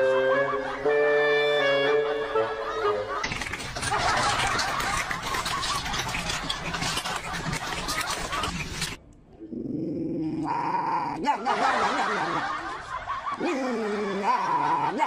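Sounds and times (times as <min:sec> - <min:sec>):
dog growling: 0:09.4 - 0:11.2.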